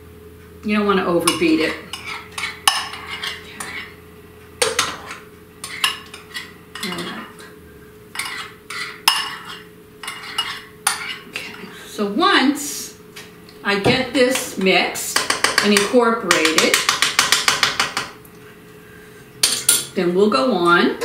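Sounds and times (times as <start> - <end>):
metal spoon scraping bowl: 1.3 - 4.0, 4.6 - 7.5, 8.1 - 11.6.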